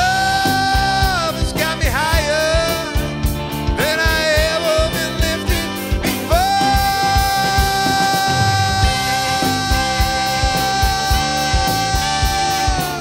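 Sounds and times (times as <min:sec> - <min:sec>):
drums and bass beat: 0:00.0 - 0:13.0
lead instrument bending notes: 0:05.5 - 0:13.0.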